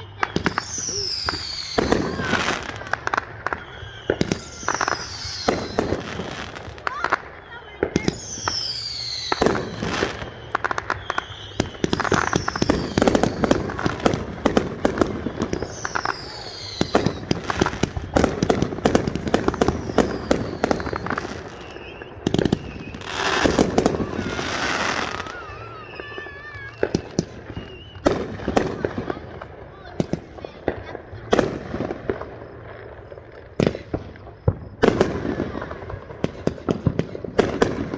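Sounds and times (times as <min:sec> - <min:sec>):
warbling whistles: 0:00.0 - 0:14.0, 0:15.0 - 0:28.2
falling firework whistles: 0:00.0 - 0:37.9
fireworks bangs and crackling: 0:00.0 - 0:37.9.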